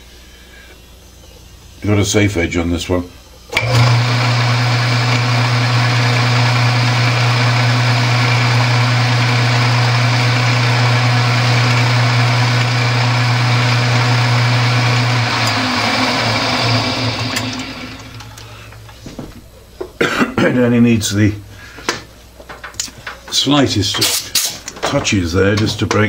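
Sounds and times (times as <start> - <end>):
lathe motor humming: 3.6 - 18.9.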